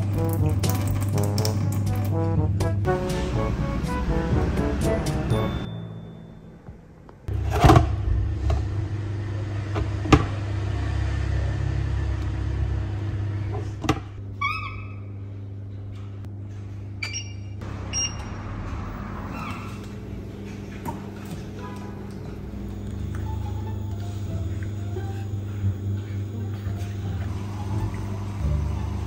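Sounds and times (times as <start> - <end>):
induction cooktop humming: 0.0 - 29.0
short electronic beeps: 17.0 - 18.3.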